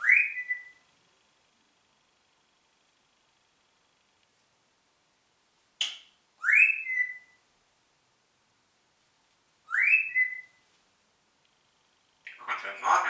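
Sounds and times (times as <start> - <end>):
parrot whistling: 0.0 - 0.8, 6.4 - 7.4, 9.7 - 10.6.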